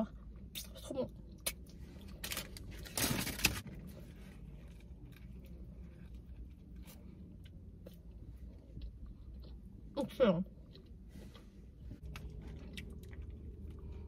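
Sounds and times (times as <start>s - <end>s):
low steady hum: 0.0s - 14.0s
paper wrapper rustling: 2.2s - 3.7s
quiet chewing: 4.1s - 14.0s.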